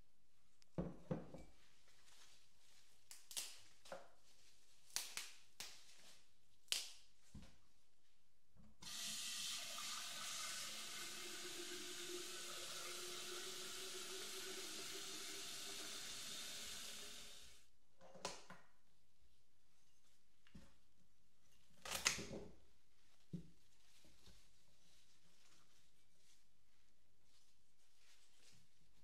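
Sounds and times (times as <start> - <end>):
tap water running into crock: 8.8 - 17.5.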